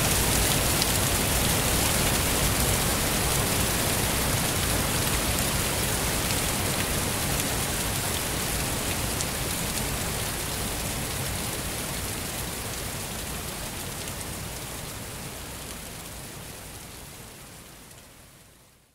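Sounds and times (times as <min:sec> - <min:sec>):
waterfall rushing: 0:00.0 - 0:09.2.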